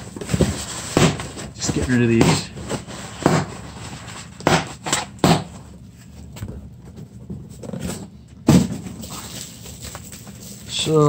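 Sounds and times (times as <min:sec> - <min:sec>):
box thump: 0:08.4 - 0:09.0
paper rustling: 0:08.9 - 0:11.0.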